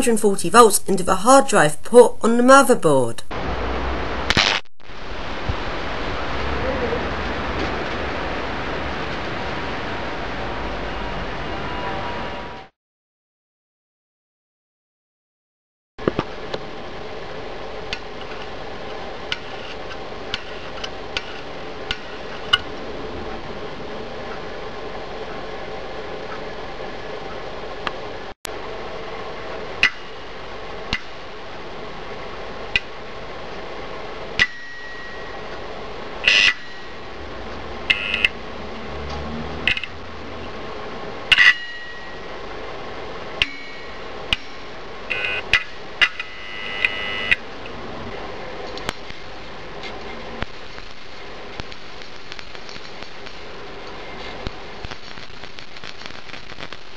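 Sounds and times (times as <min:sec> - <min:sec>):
steady hum: 0:00.0 - 0:12.4, 0:16.0 - 0:56.9
brief electric buzz: 0:04.3 - 0:04.7, 0:45.1 - 0:45.5
sharp clicks and snaps: 0:39.1 - 0:40.0, 0:51.6 - 0:56.9.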